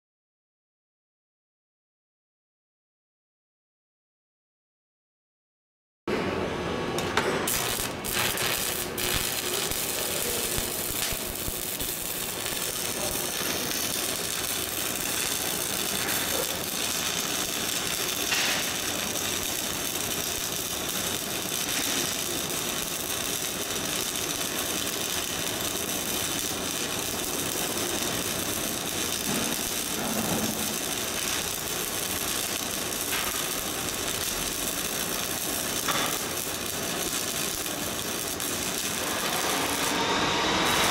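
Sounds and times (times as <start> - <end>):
welding arc crackling: 7.0 - 40.9
sharp arc cracks: 7.5 - 40.0.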